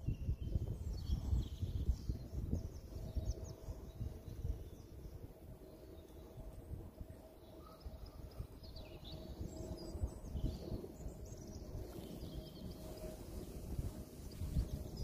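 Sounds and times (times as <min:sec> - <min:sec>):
faint bird chirps: 0:07.4 - 0:13.2.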